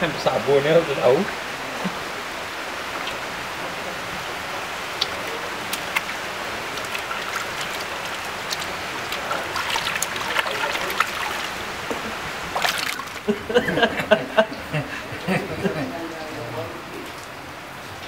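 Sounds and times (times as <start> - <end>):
small splashes and drips: 2.8 - 3.6, 4.2 - 13.3
water running from a hose: 3.0 - 13.3
hands swishing through water: 5.7 - 11.6, 12.5 - 13.2.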